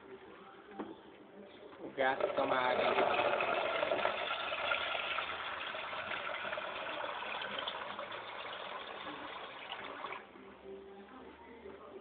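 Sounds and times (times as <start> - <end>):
water tap running: 2.2 - 10.2.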